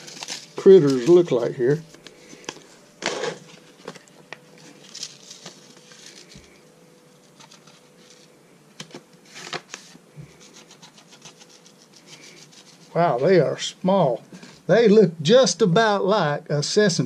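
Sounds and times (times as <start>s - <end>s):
paper packet crinkling: 0.0s - 12.8s.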